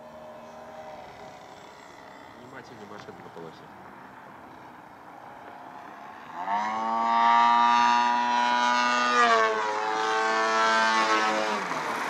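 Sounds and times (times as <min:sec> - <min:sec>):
model plane motor buzzing: 0:00.0 - 0:03.7, 0:06.3 - 0:12.0.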